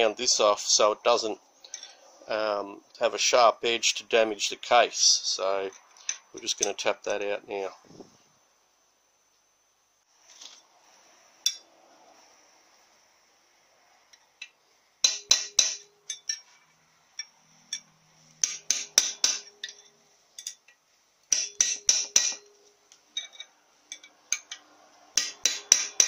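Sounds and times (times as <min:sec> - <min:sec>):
hammer striking metal drift: 0:15.0 - 0:16.4, 0:18.4 - 0:19.9, 0:21.3 - 0:22.6, 0:24.3 - 0:26.0.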